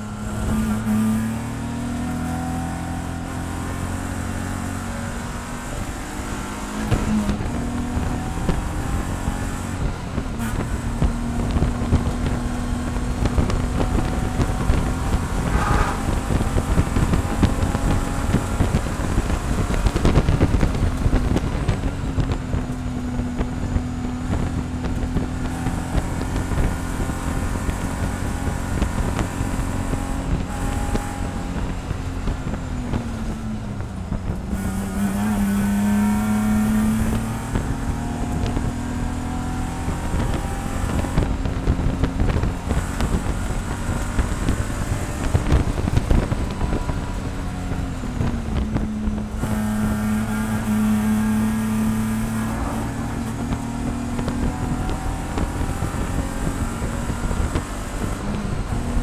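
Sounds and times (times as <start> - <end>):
race car engine running hard: 0.0 - 59.0
wind and road noise: 0.0 - 59.0.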